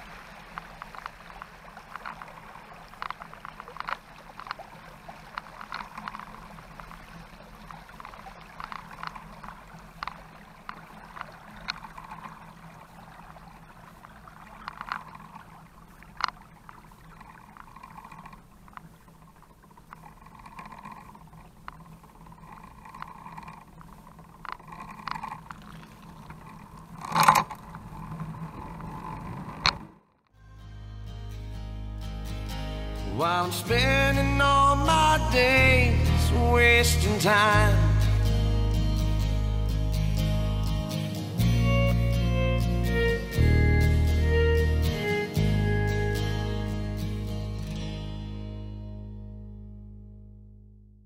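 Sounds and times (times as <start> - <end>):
tyres rolling on asphalt: 0.0 - 30.3
tyres swishing through water: 0.0 - 30.3
small clicks and rattles: 0.5 - 4.6, 5.2 - 12.6, 14.5 - 30.4.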